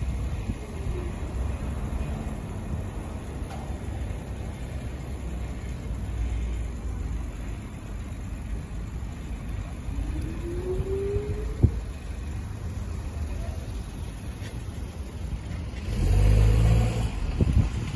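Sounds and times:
bicycle riding noise: 0.0 - 17.9
city traffic rumble: 0.0 - 17.9
rising whine: 9.6 - 12.4.

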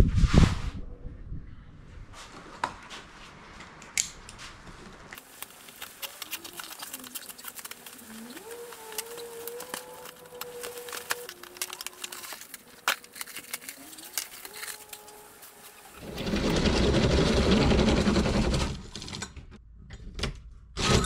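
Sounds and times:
plastic wrap crackling: 5.2 - 16.7.

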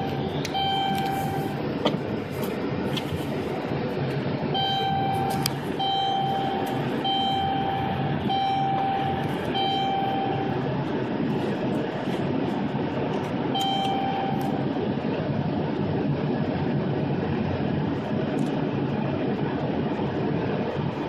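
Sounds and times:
electronic beep: 0.0 - 1.6, 4.5 - 10.6, 13.5 - 14.6
vehicle driving rumble: 0.0 - 21.0.

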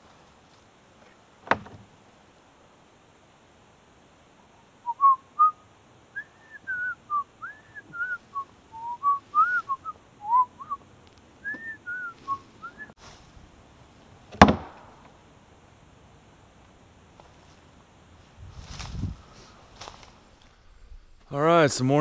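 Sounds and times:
wooden lid dropping shut: 1.4 - 1.9, 14.3 - 15.1
man whistling a tune: 4.8 - 5.6, 6.2 - 10.8, 11.4 - 12.9.

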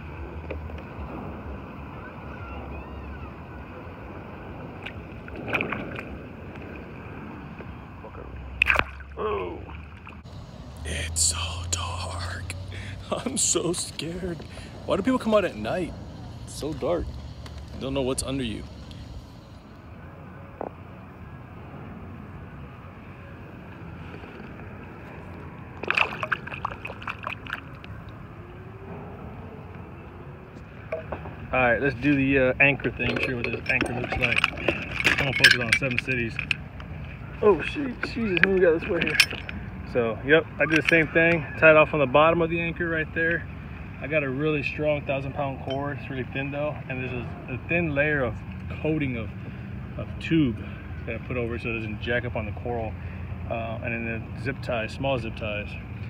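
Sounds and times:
steady background hiss: 6.1 - 26.2
fish splashing into water: 8.2 - 10.2, 25.8 - 28.0
lapping water: 25.8 - 28.0.

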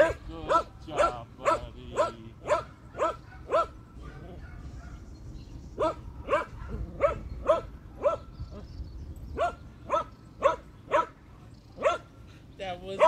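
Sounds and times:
dog barking: 0.0 - 5.1, 5.8 - 8.3, 9.4 - 11.2, 11.8 - 12.1.

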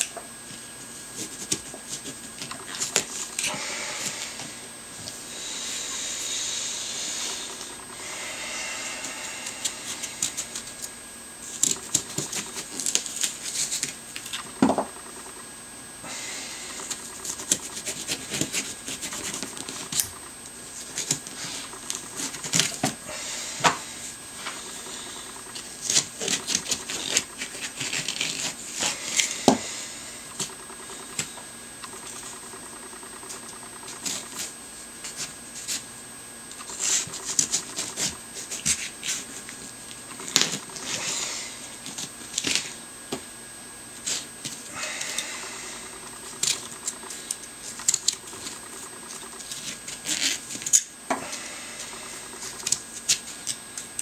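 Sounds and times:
carving tool scraping pumpkin: 16.8 - 20.0.

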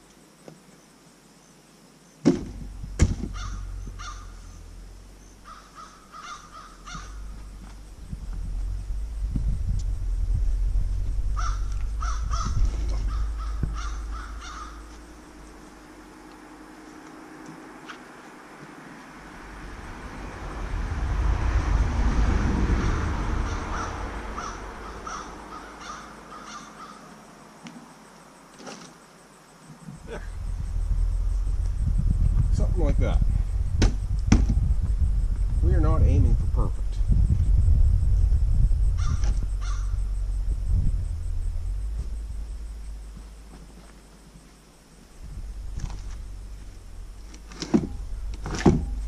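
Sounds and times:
sharp knocks: 2.2 - 3.5, 33.8 - 34.6
low rumble: 2.4 - 27.3, 30.0 - 49.0
bird calling: 3.2 - 9.2, 10.9 - 18.1, 22.9 - 27.2, 38.9 - 40.4
crow cawing: 3.3 - 4.4, 5.4 - 7.4, 11.4 - 15.3, 23.4 - 27.2, 39.0 - 39.9.

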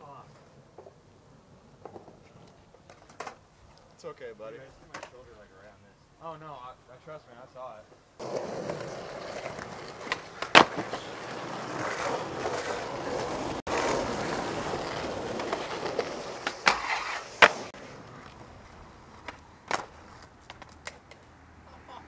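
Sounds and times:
skateboard wheels rolling on concrete: 0.0 - 22.0
skateboard clacks: 1.8 - 3.4, 4.9 - 5.2, 8.2 - 21.3.

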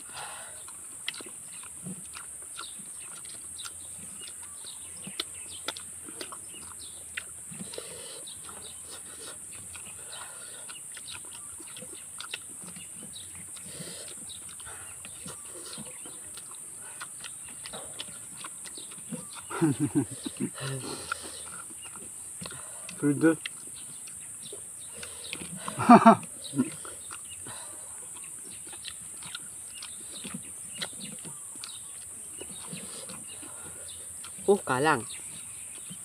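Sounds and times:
wet mouth clicks and lip smacks: 0.6 - 10.0, 10.6 - 27.4, 28.1 - 33.4, 34.2 - 34.5
noodles being slurped and chewed: 0.6 - 35.2
steady high-pitched hiss: 13.4 - 30.7.

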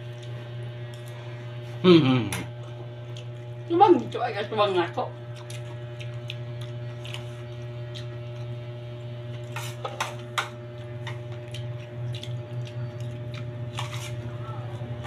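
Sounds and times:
low electrical hum: 0.0 - 15.0
cabbage leaves tearing and crunching: 5.4 - 8.4.

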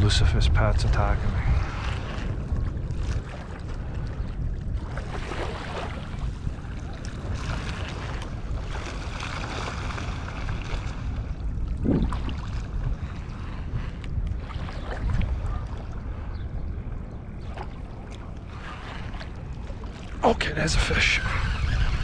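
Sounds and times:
wind rumbling on microphone: 0.0 - 22.0
small waves lapping on sand: 4.8 - 11.4, 17.4 - 20.6.

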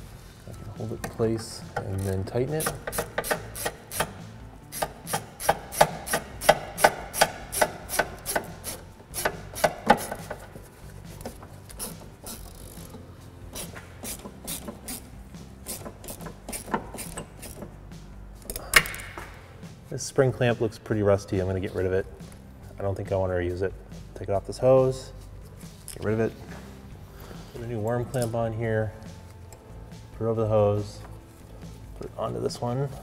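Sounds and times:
hand ratchet clicking: 1.8 - 10.5, 11.2 - 17.7.

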